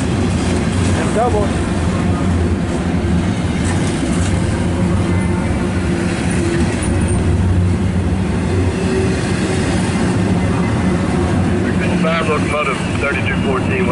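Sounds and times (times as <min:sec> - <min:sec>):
freight train wheels rumbling: 0:00.0 - 0:13.9.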